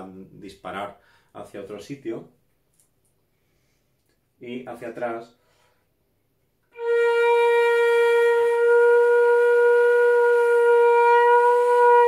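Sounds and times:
flute long held note: 6.7s - 12.0s.

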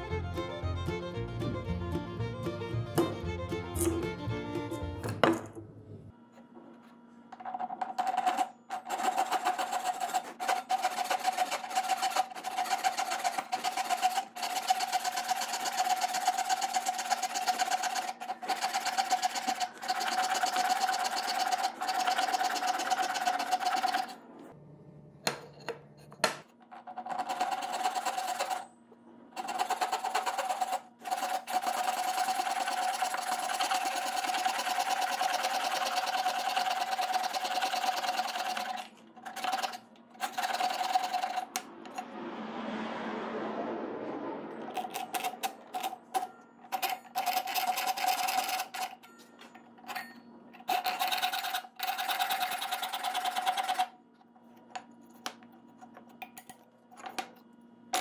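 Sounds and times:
hand saw cutting wood: 8.2s - 24.2s.

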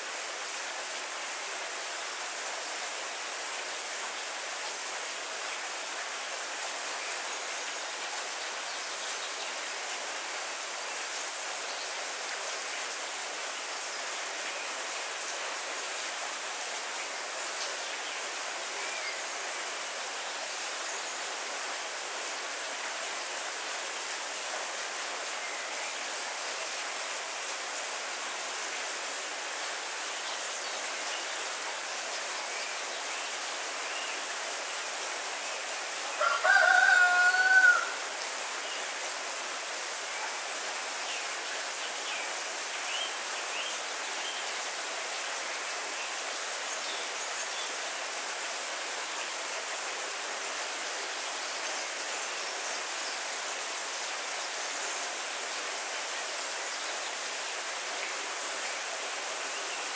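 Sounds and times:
heavy rain falling: 0.0s - 59.9s
rooster crowing: 36.1s - 38.0s.

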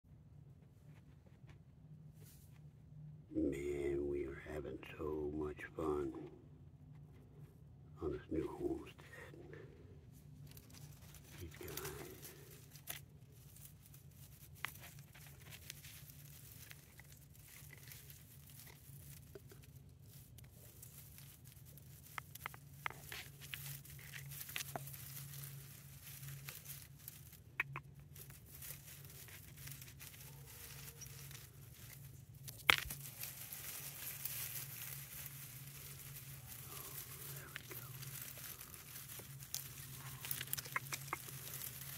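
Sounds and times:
low steady hum: 0.1s - 41.9s
dry grass rustling: 7.2s - 41.9s.

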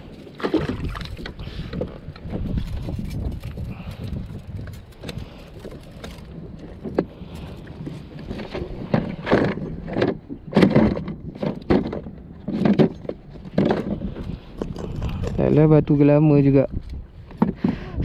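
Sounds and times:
water noise: 0.0s - 3.6s
wind: 0.0s - 18.0s.

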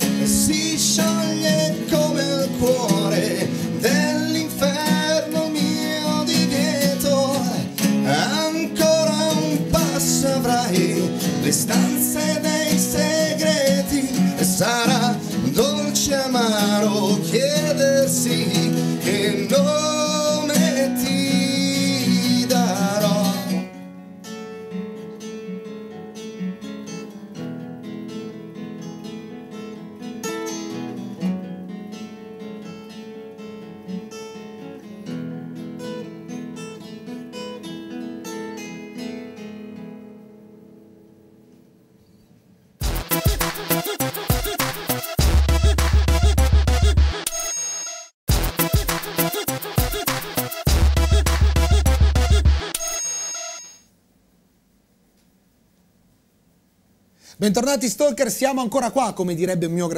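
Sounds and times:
man singing with vibrato: 0.0s - 23.7s
strummed acoustic guitars: 0.0s - 41.7s, 42.8s - 47.2s, 48.3s - 52.8s.

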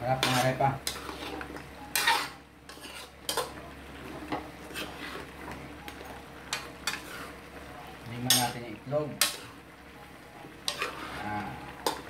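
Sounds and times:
metal ladle scraping a wok: 0.1s - 3.4s, 4.7s - 5.3s, 10.7s - 12.0s.

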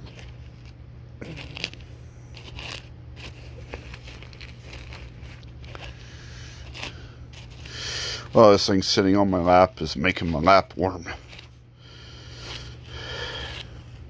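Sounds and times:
nylon fabric crinkling: 0.0s - 11.6s
faint low hum: 0.0s - 14.0s
brush scratching through fur: 1.6s - 11.6s.

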